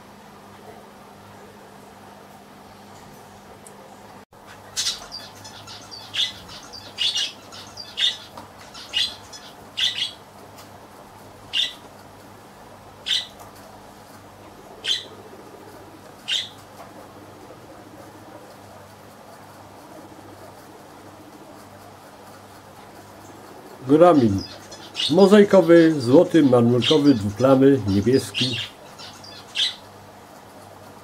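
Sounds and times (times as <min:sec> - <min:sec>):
bird calls: 0:04.4 - 0:10.3, 0:11.5 - 0:12.1, 0:13.0 - 0:13.4, 0:14.6 - 0:18.7, 0:19.3 - 0:30.0.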